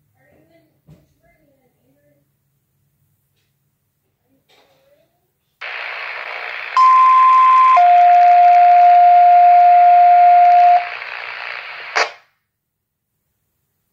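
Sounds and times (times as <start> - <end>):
radio hiss: 5.6 - 12.2
radio squelch burst: 5.6 - 12.2
two-tone radio page: 5.6 - 12.2.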